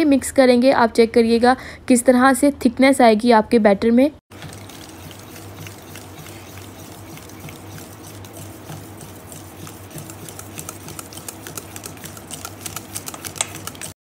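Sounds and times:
steady low hum: 4.3s - 14.0s
utensil clicking against bowl: 9.6s - 14.0s.

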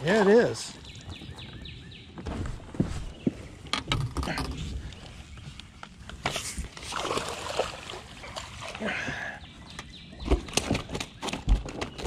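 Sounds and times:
water splashing and sloshing: 4.6s - 12.0s.

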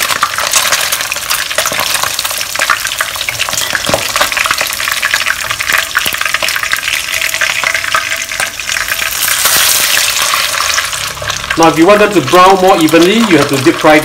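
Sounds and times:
tofu sizzling in oil: 0.0s - 14.0s.

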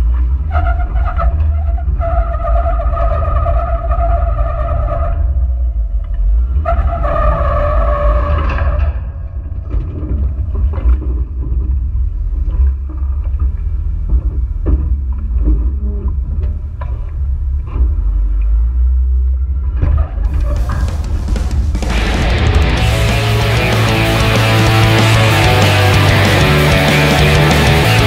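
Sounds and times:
vehicle low rumble: 0.0s - 28.0s
steady whining tone: 20.6s - 28.0s.

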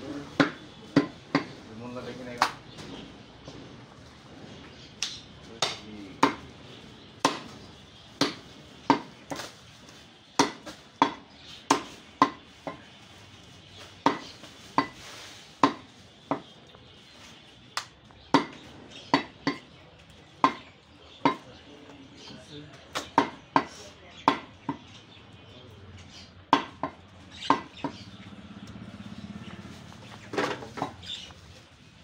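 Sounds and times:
knife chopping meat on wood: 0.3s - 1.6s, 5.6s - 6.5s, 7.2s - 7.6s, 8.2s - 9.5s, 10.4s - 12.9s, 14.0s - 15.0s, 15.6s - 16.5s, 17.8s - 19.7s, 20.4s - 21.5s, 22.9s - 24.9s, 26.5s - 28.0s.

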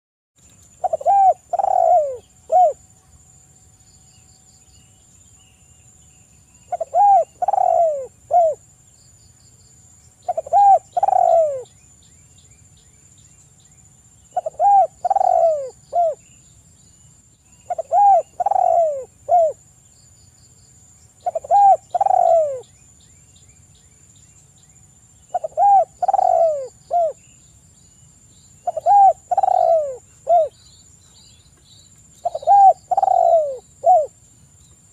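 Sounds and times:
dove cooing: 0.8s - 2.8s, 6.7s - 8.6s, 10.2s - 11.7s, 14.3s - 16.2s, 17.7s - 19.6s, 21.2s - 22.7s, 25.3s - 27.2s, 28.6s - 30.6s, 32.2s - 34.2s.

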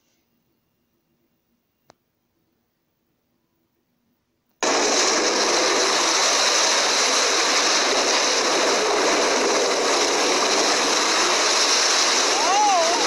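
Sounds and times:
churning water: 4.6s - 13.0s.

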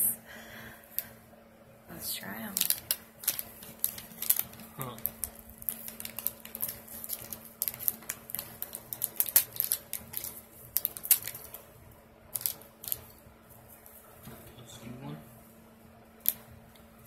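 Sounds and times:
plastic wrapper crinkling: 2.2s - 11.7s, 12.3s - 14.0s.

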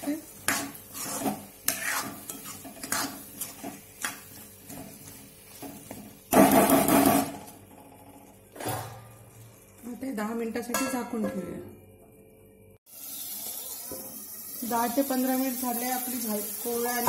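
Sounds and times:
metal spatula scraping a pan: 0.4s - 6.0s.

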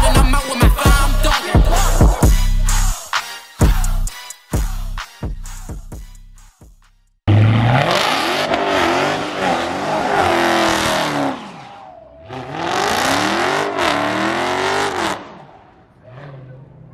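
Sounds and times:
car engine revving: 7.3s - 16.9s.

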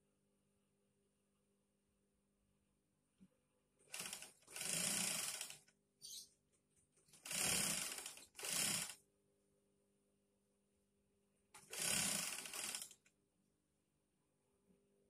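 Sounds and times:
sewing machine stitching: 3.9s - 5.7s, 7.1s - 9.0s, 11.6s - 13.1s.

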